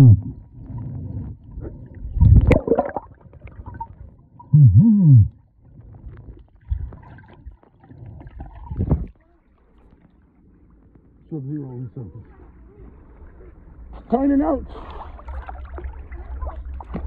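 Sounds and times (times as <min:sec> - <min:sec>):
underwater gurgling burst: 0:00.0 - 0:09.2
man moaning underwater: 0:04.6 - 0:05.4.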